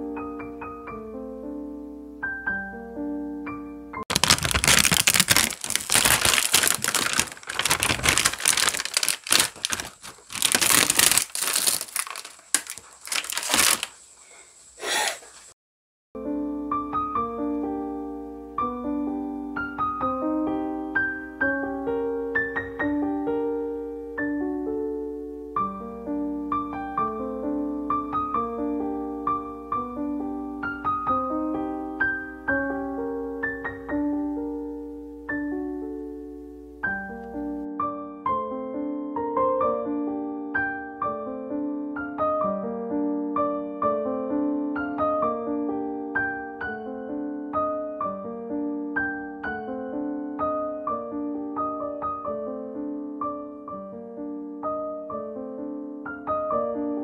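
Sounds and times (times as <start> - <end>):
gentle slow piano music: 0.0 - 13.8, 16.2 - 57.0
plastic sheet crinkling: 4.1 - 14.5.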